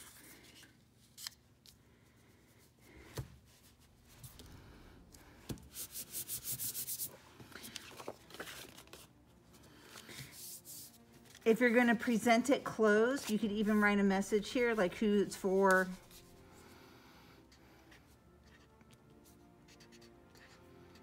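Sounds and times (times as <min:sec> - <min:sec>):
hands rubbing paper: 0:05.7 - 0:09.0.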